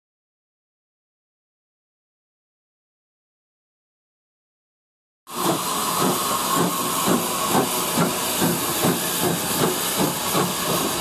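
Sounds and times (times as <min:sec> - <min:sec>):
steam engine soft beat: 0:05.3 - 0:11.0
steam hissing: 0:05.3 - 0:11.0.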